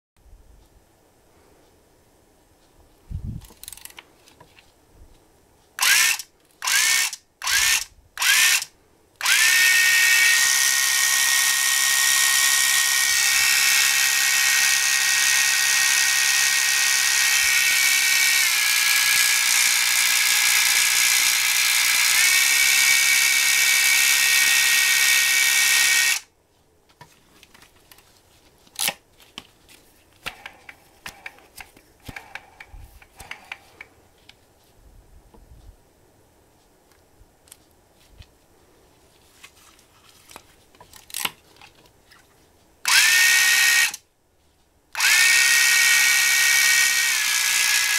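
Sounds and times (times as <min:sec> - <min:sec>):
electric fishing reel motor whine: 0:09.2 - 0:26.2.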